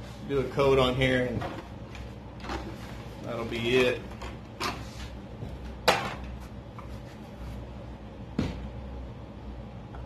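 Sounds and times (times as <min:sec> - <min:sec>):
low steady hum: 0:00.0 - 0:10.0
objects knocking on workbench: 0:08.4 - 0:08.7.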